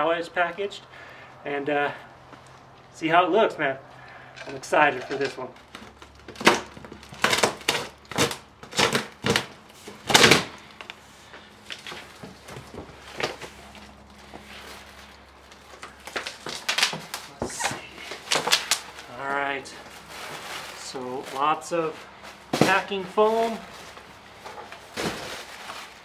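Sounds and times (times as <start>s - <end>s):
plastic-wrapped foam rustling: 4.5s - 26.0s
cardboard flaps folding: 5.6s - 10.8s, 11.7s - 19.1s
knife slitting packing tape: 6.4s - 9.5s.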